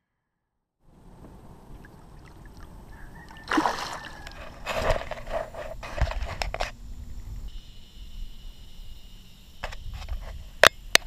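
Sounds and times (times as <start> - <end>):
water splashing beside boat: 0.9 - 6.0.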